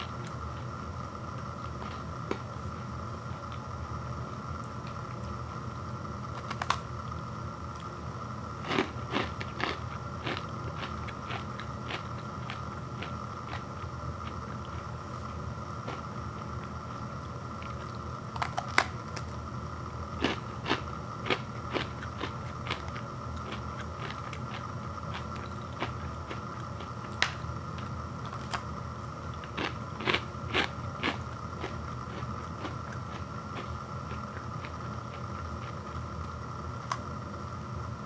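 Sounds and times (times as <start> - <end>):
chewing crunchy nut bar: 6.3 - 6.9, 8.6 - 19.4, 20.1 - 37.1.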